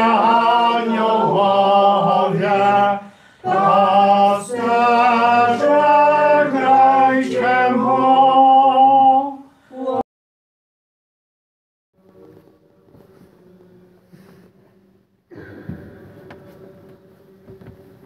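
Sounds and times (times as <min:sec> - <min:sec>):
choir singing a cappella: 0:00.0 - 0:10.0.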